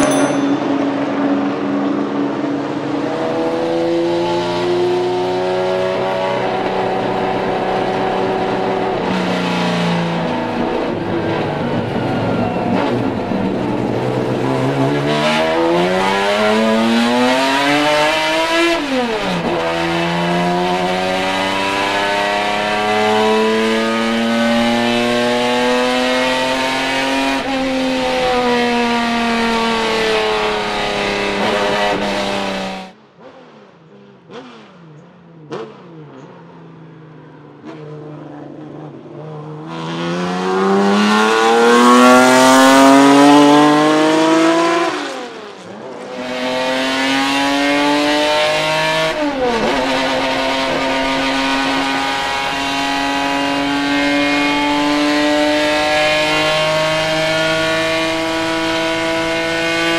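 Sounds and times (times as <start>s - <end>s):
racing car engine revving: 0.0s - 59.9s.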